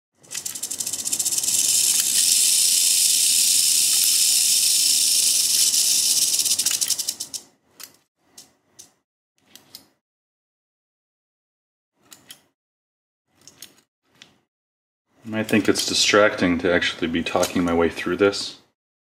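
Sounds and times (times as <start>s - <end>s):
rattlesnake rattling: 0.2s - 7.4s.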